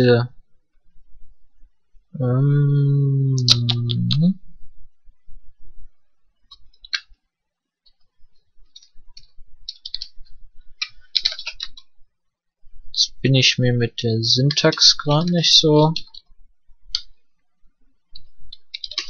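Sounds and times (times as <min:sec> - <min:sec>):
man's hesitation sound: 0:02.2 - 0:04.4
keyboard keys clicking: 0:08.7 - 0:10.2, 0:10.8 - 0:11.9, 0:18.2 - 0:19.0.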